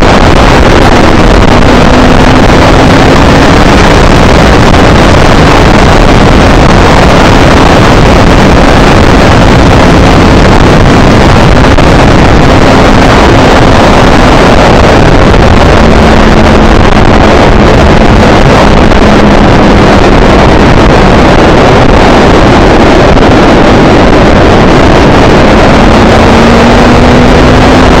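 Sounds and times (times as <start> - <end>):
wind rush on microphone: 0.0 - 28.0
motorcycle engine: 24.7 - 28.0.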